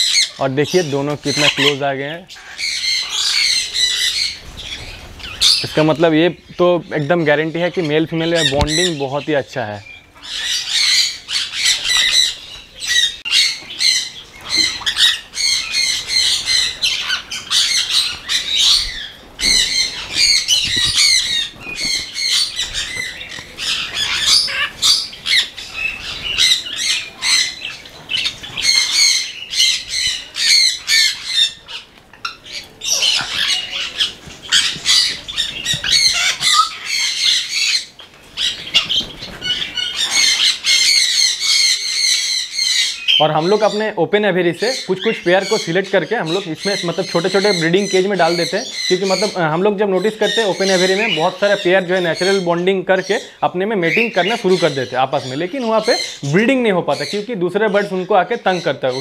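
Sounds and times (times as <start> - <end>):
parrots squawking and chattering: 0.0 - 59.0.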